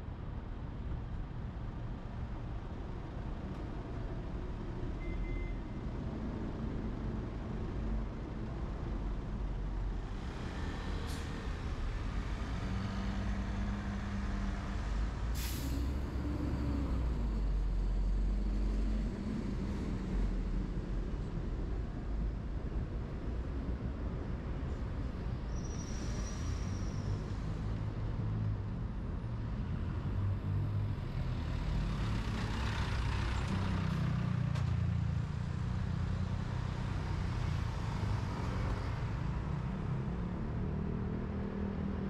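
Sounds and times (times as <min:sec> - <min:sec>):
heavy road traffic: 0:00.0 - 0:42.0
air brakes hissing: 0:15.4 - 0:16.0.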